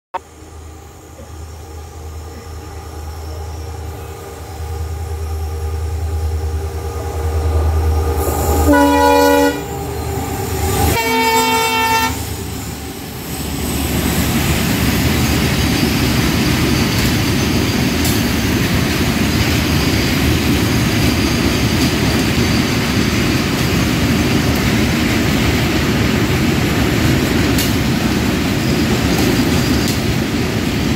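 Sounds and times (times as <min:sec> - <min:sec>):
train wheels rolling on rails: 0:00.4 - 0:30.9
locomotive multi-tone horn: 0:06.9 - 0:10.0, 0:10.9 - 0:12.3.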